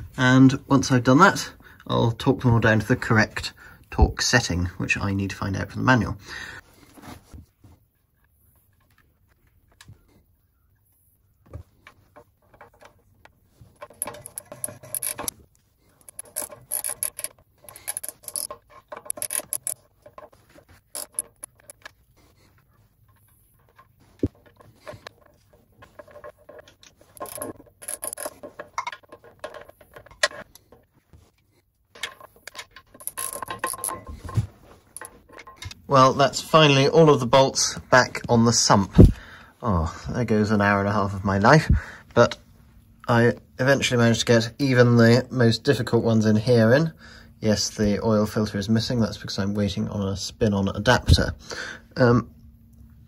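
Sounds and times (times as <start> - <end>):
ratchet spanner clicking: 13.8 - 15.3, 16.0 - 19.8, 20.9 - 21.8, 27.2 - 28.3.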